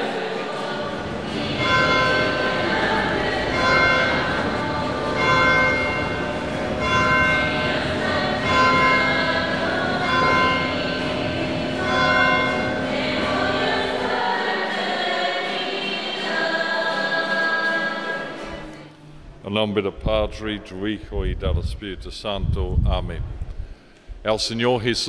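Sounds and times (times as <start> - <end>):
low drone: 0.0 - 14.8
choir singing with music: 0.0 - 19.2.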